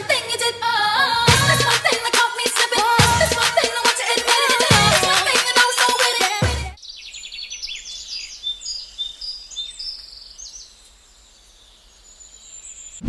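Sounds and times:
small birds chirping: 6.8 - 13.0.

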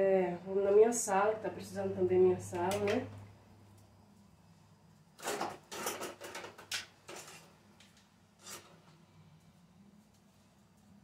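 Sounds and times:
items scraping on kitchen counter: 5.2 - 7.6, 8.4 - 9.0.

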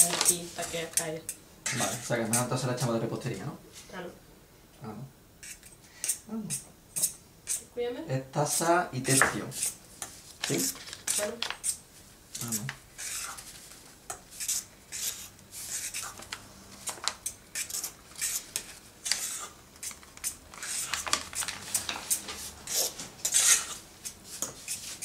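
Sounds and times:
paper bag crackling: 0.0 - 0.6, 10.4 - 11.6, 20.0 - 22.4
metal spoon scraping steel pot: 22.7 - 23.8.

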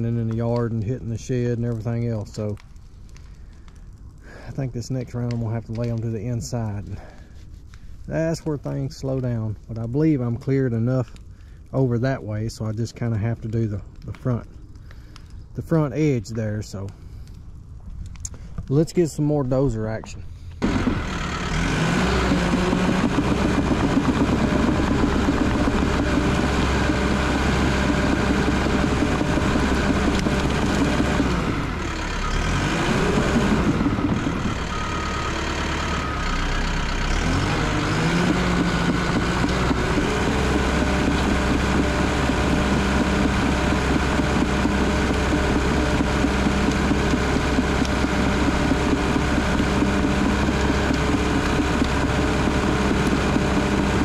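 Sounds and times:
bulldozer diesel engine working: 20.0 - 54.0.

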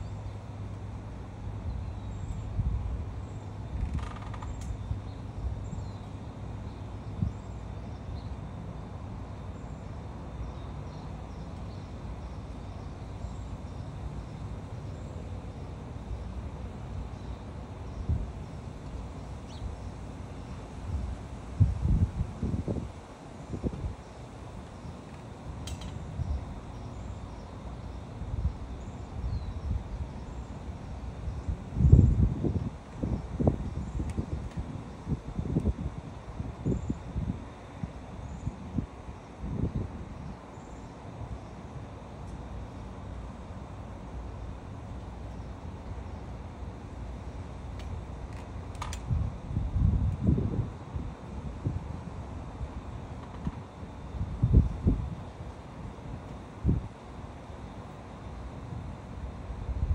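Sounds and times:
wind buffeting microphone: 20.8 - 24.1, 30.8 - 40.4, 48.9 - 52.8, 53.4 - 57.0
faint bird chirps: 26.2 - 30.6.

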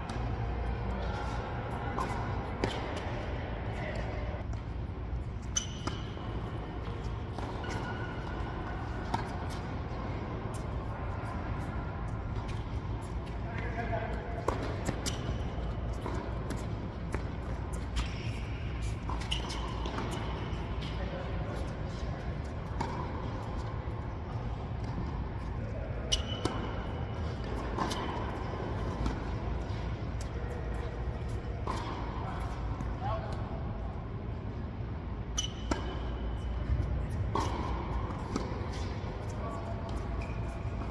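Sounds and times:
tennis ball bouncing: 2.0 - 3.2, 5.4 - 11.7, 14.4 - 21.0, 21.6 - 23.7, 26.1 - 33.0, 35.4 - 40.9
shoe squeaks: 5.4 - 9.6, 15.0 - 16.0, 17.6 - 21.0, 25.8 - 27.1, 35.3 - 37.7, 38.6 - 40.9
rackets striking tennis ball: 5.5 - 11.7, 12.3 - 23.8, 26.0 - 33.5, 35.3 - 40.9
tennis ball hit by racket: 27.4 - 29.7.

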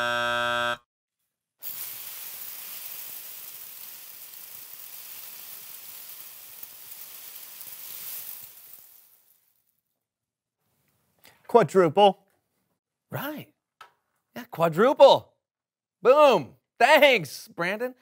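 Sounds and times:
steady buzzing tone: 0.0 - 0.8
dry rice pouring: 1.6 - 9.6.

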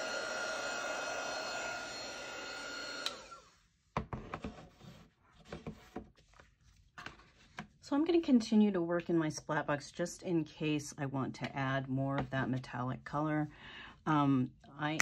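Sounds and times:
heat gun whirring: 0.0 - 3.5.

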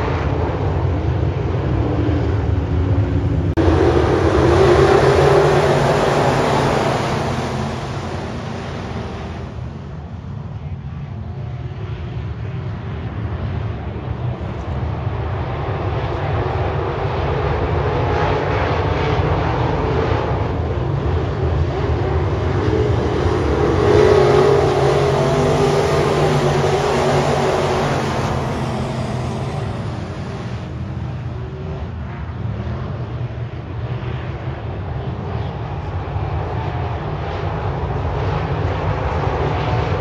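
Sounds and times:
race car engines passing: 0.0 - 10.4, 14.0 - 33.9.

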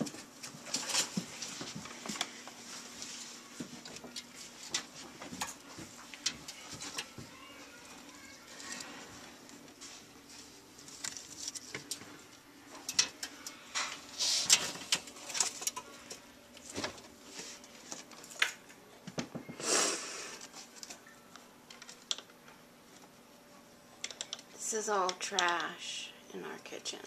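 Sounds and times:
plastic and paper rustling: 0.0 - 12.4, 13.6 - 18.5.

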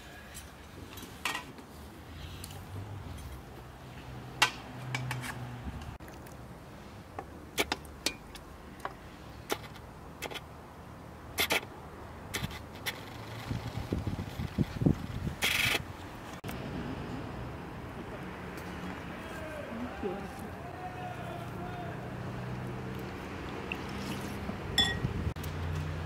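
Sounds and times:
metal utensils clinking on pot and bowls: 24.8 - 25.1.

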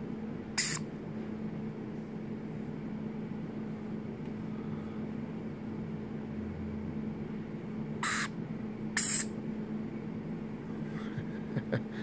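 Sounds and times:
lorikeet squeak: 0.6 - 0.8, 8.0 - 8.4, 9.0 - 9.4.

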